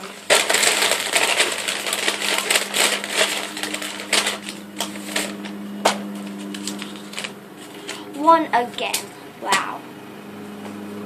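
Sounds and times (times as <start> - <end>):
paper bag rustling and crinkling: 0.0 - 8.3.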